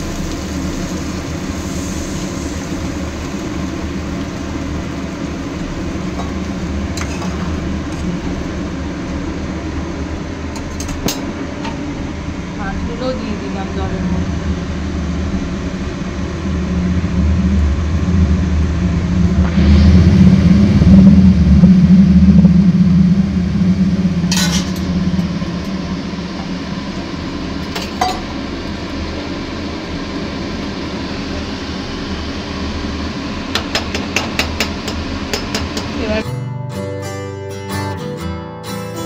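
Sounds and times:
low mechanical hum: 0:00.0 - 0:36.3
metal pot clinking: 0:27.6 - 0:28.4.

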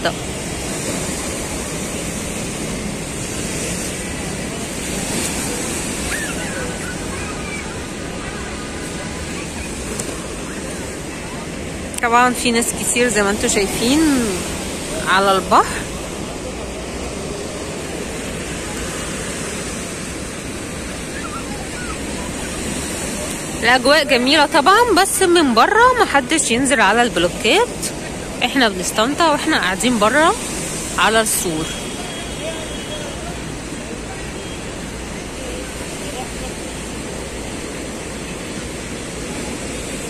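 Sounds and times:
waves breaking on concrete blocks: 0:00.1 - 0:31.8.

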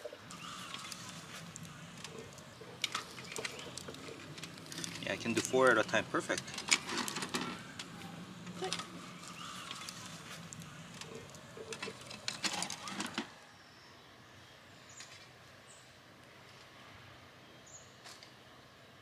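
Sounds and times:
bird chirps: 0:00.0 - 0:01.4, 0:02.1 - 0:04.3, 0:07.6 - 0:12.0
cooking gear clicks and knocks: 0:02.0 - 0:07.9, 0:09.7 - 0:13.3.

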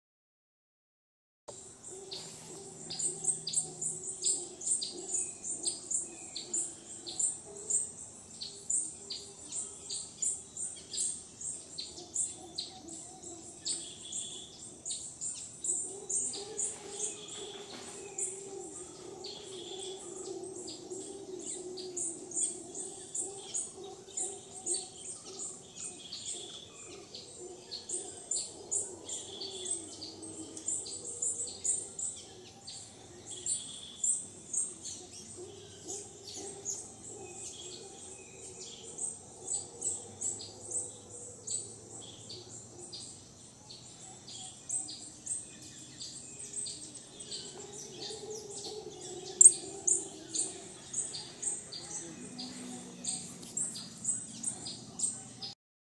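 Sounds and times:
birds chirping: 0:01.5 - 0:55.6
distant howler monkeys roaring: 0:01.5 - 0:55.6.

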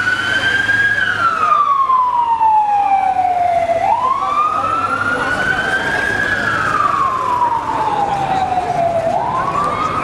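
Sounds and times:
ambulance siren wailing: 0:00.0 - 0:10.0.

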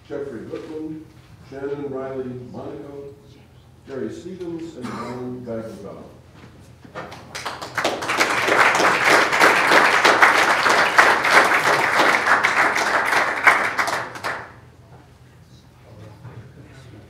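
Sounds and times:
audience applauding: 0:07.1 - 0:14.6.

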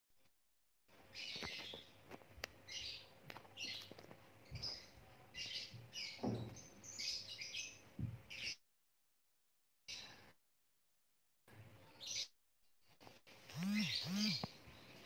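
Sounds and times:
birds chirping: 0:00.9 - 0:08.6, 0:13.5 - 0:15.0.

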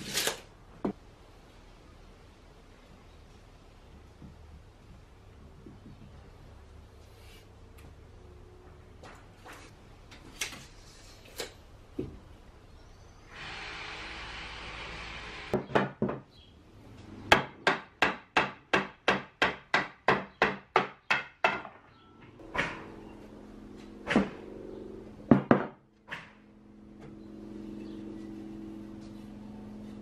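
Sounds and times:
steady low hum: 0:22.4 - 0:30.0.

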